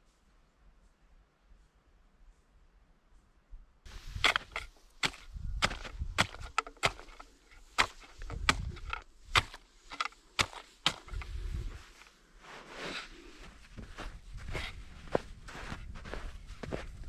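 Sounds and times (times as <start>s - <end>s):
thin ice cracking: 4.2s - 11.2s
pole tip tapping ice: 4.2s - 11.3s.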